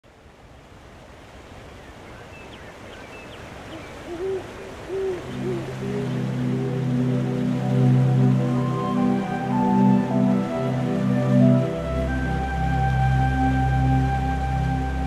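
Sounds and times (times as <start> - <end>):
rain: 0.0 - 15.0
rushing water: 0.0 - 15.0
owl hooting: 3.7 - 7.2
soft sustained music chords: 4.2 - 15.0.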